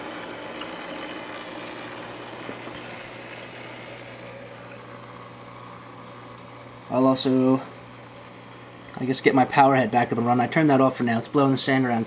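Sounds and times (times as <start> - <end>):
water trickling and splashing: 0.0 - 6.8
electric pump hum: 0.0 - 12.0.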